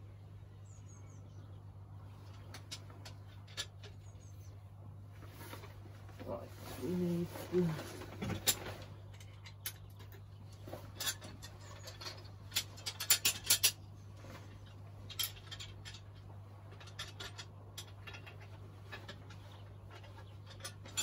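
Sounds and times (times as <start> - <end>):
steady low hum: 0.0 - 21.0
metal tools clicking and tapping: 2.3 - 4.3, 8.2 - 21.0.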